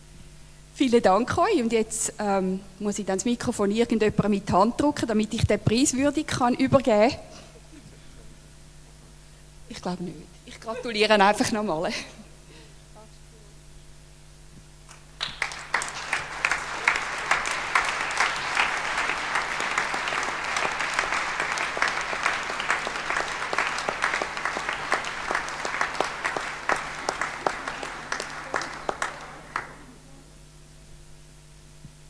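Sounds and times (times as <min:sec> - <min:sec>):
audience applauding: 0:14.9 - 0:30.0.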